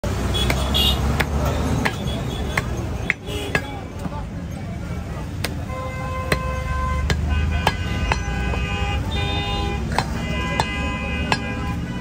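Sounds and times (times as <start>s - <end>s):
low traffic rumble: 0.0s - 12.0s
vehicle horns honking: 0.2s - 3.8s, 5.6s - 12.0s
cleaver chopping meat on wood: 0.4s - 3.8s, 5.4s - 5.6s, 6.3s - 8.6s, 9.9s - 11.6s.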